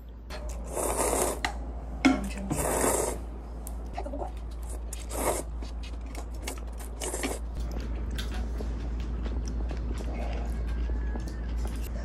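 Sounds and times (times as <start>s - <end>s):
slurping noodles: 0.5s - 1.6s, 2.5s - 3.3s, 4.7s - 5.6s, 6.8s - 7.5s
chewing: 3.7s - 12.0s.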